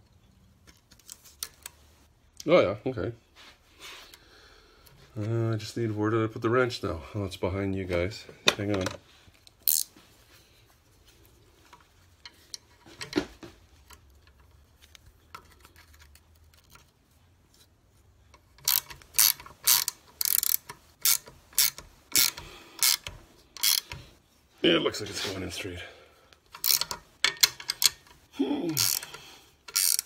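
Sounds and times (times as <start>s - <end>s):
ratchet wrench clicking: 9.6s - 9.9s, 18.4s - 24.0s, 26.5s - 28.2s, 28.8s - 30.0s.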